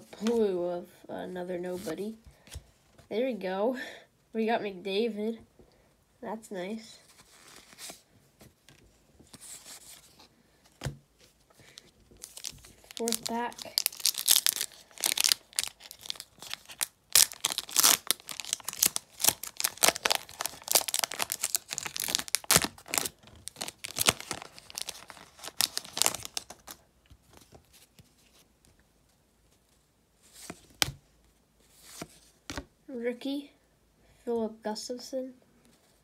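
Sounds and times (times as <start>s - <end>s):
wrapper tearing and crinkling: 12.2s - 26.8s.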